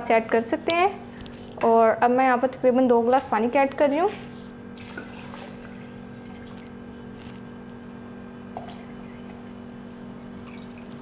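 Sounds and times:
water pouring into glass jar: 8.6s - 9.6s, 10.4s - 11.0s.

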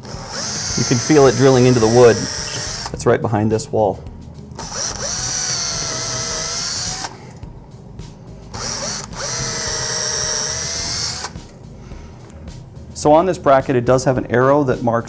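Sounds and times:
cordless drill whining: 0.0s - 3.0s, 4.6s - 7.4s, 8.5s - 11.5s.

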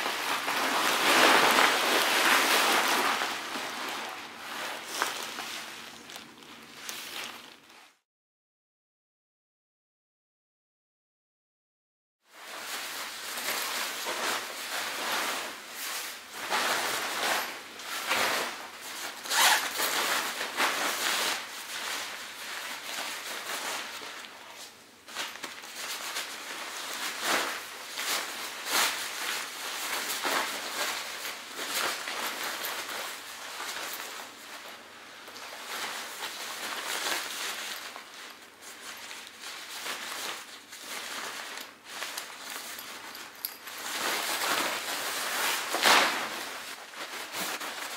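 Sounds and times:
crinkly foil fabric rustling: 0.0s - 8.0s, 12.3s - 47.9s
zip being worked: 19.2s - 19.8s.

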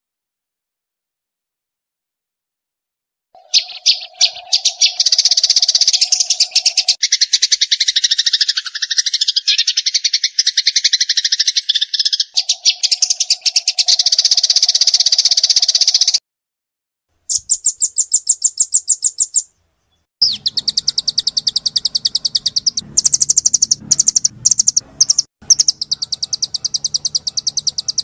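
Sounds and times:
songbird trilling: 3.4s - 16.2s, 17.3s - 28.0s
low drone: 20.8s - 28.0s.

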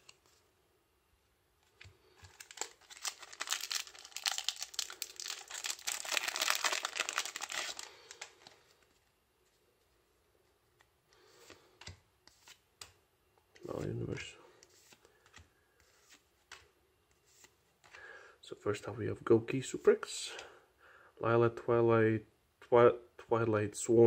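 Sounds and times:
foil wrapper crinkling and tearing: 2.2s - 8.6s.

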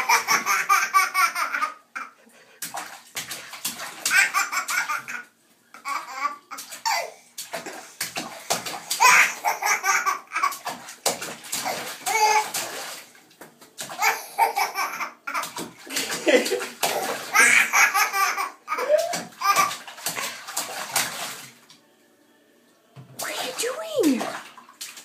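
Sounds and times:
toddler laughing: 0.0s - 2.2s, 4.1s - 7.2s, 9.0s - 10.6s, 14.0s - 15.6s, 16.4s - 19.7s
bathwater splashing in a tub: 0.0s - 21.8s, 23.0s - 25.0s.

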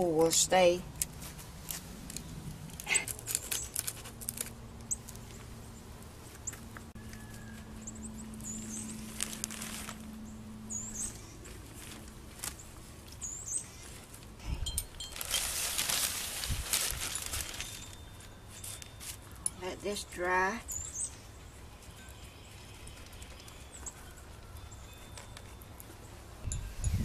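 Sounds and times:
bird chirps: 6.4s - 9.1s, 10.2s - 11.4s
gloved hands rustling plastic sheet: 8.6s - 10.2s, 14.9s - 19.3s.

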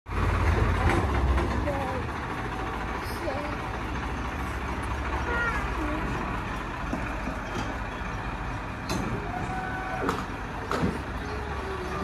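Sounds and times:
tractor diesel engine running: 0.1s - 12.0s.

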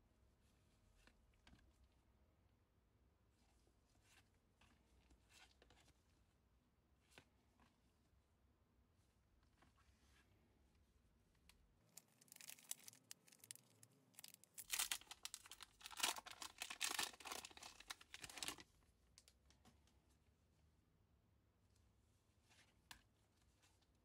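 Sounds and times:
foil wrapper crinkling and tearing: 11.9s - 18.6s.

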